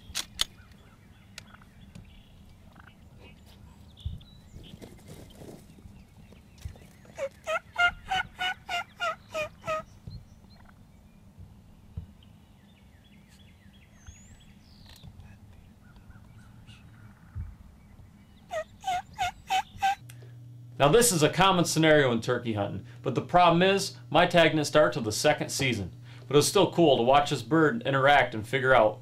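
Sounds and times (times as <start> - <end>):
turkey calling: 0.5 - 4.8, 6.6 - 10.8, 18.4 - 20.0.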